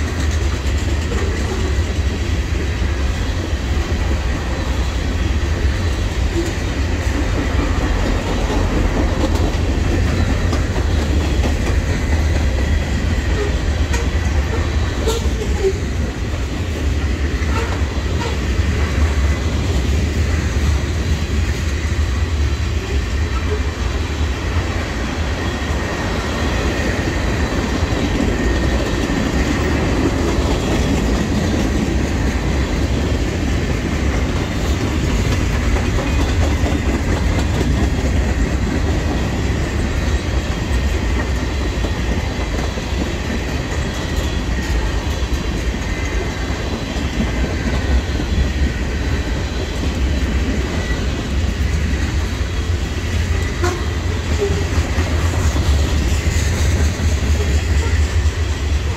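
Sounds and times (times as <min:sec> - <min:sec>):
wheels clattering over rail joints: 0:00.0 - 0:02.7
freight train rumbling past: 0:00.0 - 0:58.9.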